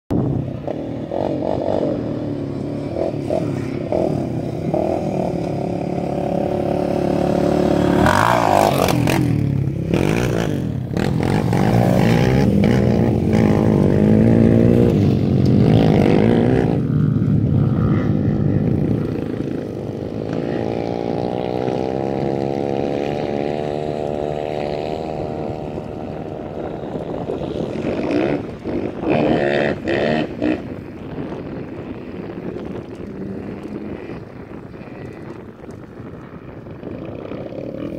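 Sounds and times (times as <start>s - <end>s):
motorbike engine revving: 0.1s - 37.9s.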